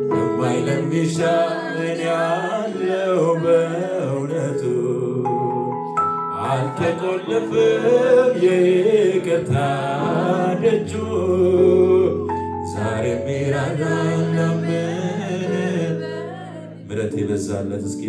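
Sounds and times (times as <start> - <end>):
electronic keyboard accompaniment: 0.0 - 18.0
man singing into a microphone: 0.0 - 18.0.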